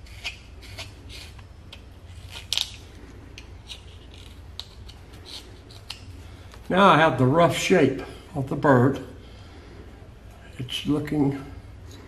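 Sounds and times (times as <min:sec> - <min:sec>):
knife carving wood: 0:00.0 - 0:06.6.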